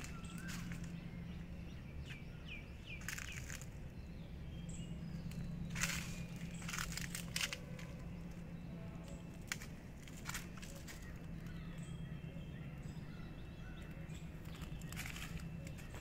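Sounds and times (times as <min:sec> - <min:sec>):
footsteps crunching on dry leaves: 0:00.0 - 0:03.8, 0:05.2 - 0:11.6, 0:14.3 - 0:16.0
bird chirping: 0:00.0 - 0:16.0
low steady hum: 0:00.0 - 0:16.0.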